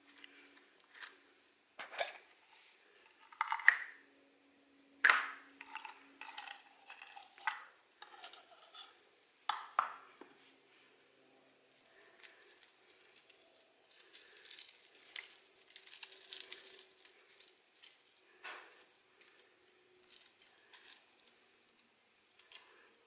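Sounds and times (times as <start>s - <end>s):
egg shell crackling as peeled: 3.0s - 4.0s, 5.5s - 9.9s, 11.5s - 22.9s.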